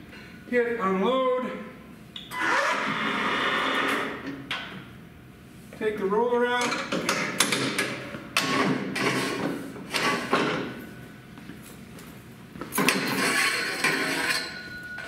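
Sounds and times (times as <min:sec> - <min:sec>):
metal conduit sliding scrape: 0:12.8 - 0:14.7
faint metallic ringing: 0:14.3 - 0:15.0.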